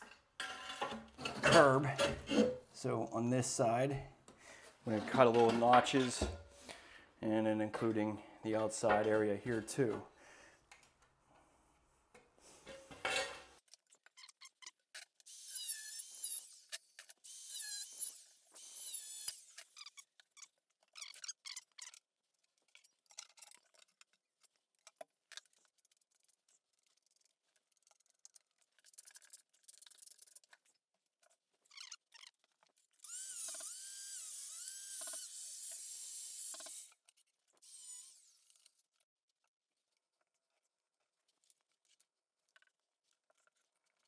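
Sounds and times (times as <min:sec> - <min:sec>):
handheld power tool running: 0:33.0 - 0:37.0, 0:37.6 - 0:38.7.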